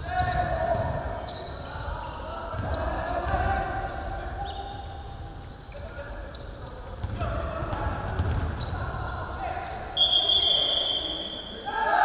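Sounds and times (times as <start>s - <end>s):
sneakers squeaking: 0.0s - 11.8s
basketball bouncing on gym floor: 7.0s - 8.6s.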